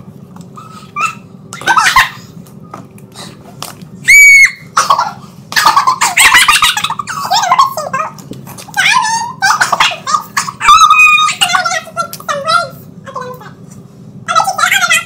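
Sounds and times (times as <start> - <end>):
girls laughing and squealing: 0.8 - 2.3, 4.0 - 8.0
girl shrieking: 4.0 - 4.7, 8.8 - 11.5.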